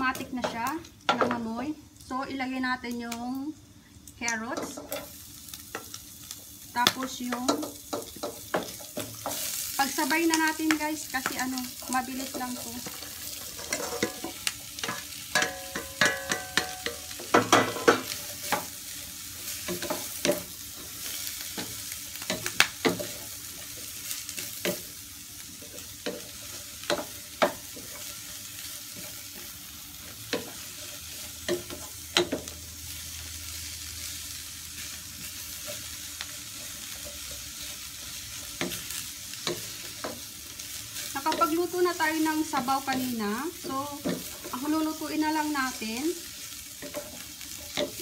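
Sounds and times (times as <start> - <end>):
vegetables sizzling in frying pan: 0.0 - 48.0.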